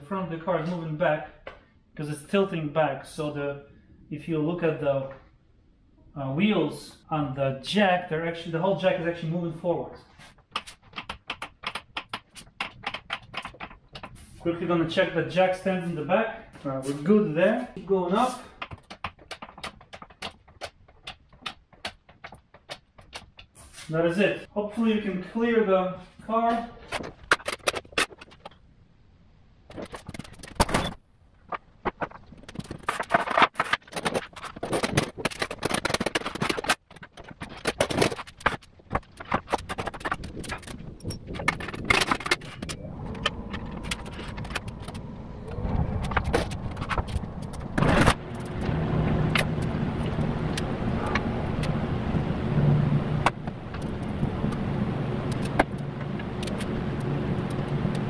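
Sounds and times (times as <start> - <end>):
steady low hum: 42.2 - 58.0.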